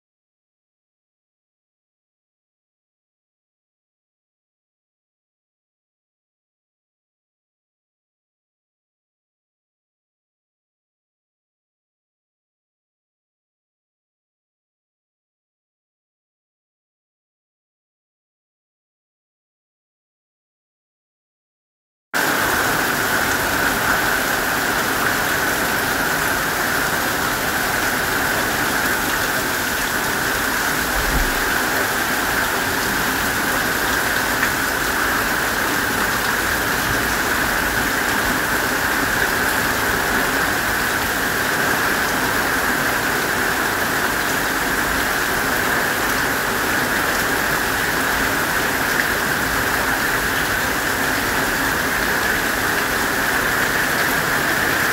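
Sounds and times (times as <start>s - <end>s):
heavy rain pouring: 22.2s - 54.9s.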